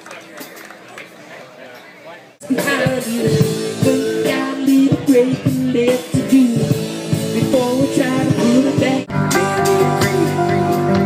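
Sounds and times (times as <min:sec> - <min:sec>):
live rock band music: 0:02.4 - 0:11.0.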